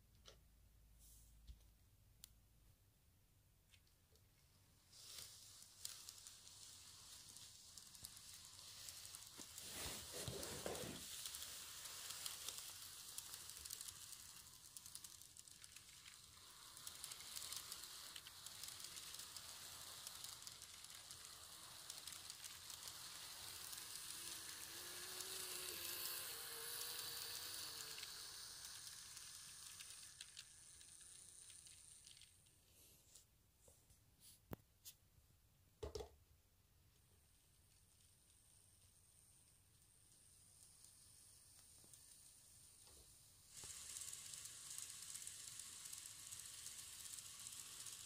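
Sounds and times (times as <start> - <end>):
small clicks of train wheels: 3.7 - 32.6, 37.6 - 48.0
model train running on track: 4.9 - 32.4, 38.5 - 48.0.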